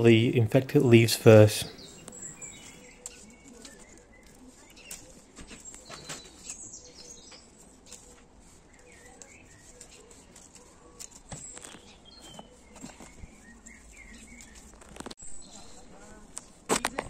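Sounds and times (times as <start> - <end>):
birds chirping: 0.0 - 17.0
leaves rustling: 1.8 - 17.0
secateurs snipping: 9.1 - 12.0.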